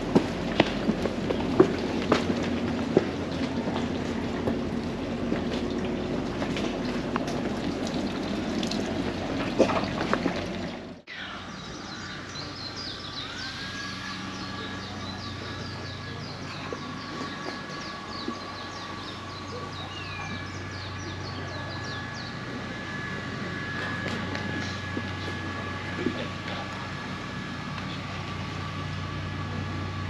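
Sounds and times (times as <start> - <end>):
water running and splashing: 1.6 - 11.0
birds chirping: 7.8 - 30.0.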